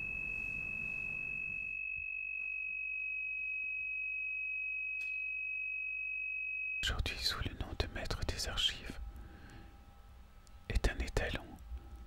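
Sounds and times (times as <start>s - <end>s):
high-pitched pure tone: 0.0s - 7.3s
faint background hiss: 6.8s - 12.0s.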